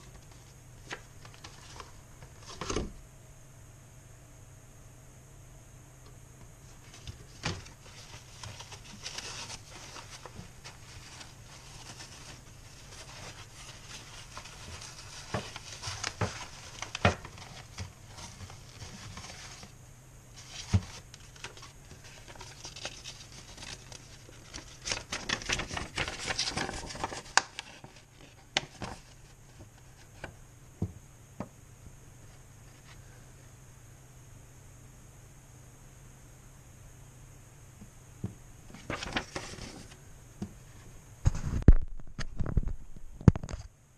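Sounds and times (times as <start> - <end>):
paper rustling: 0.0 - 2.9, 6.6 - 19.8, 20.4 - 30.3, 38.7 - 40.0.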